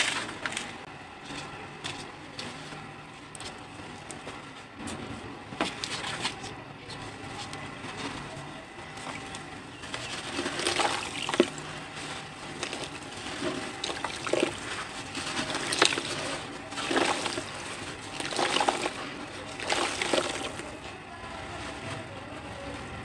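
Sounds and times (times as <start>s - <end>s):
cement powder crumbling between hands: 8.2s - 21.6s.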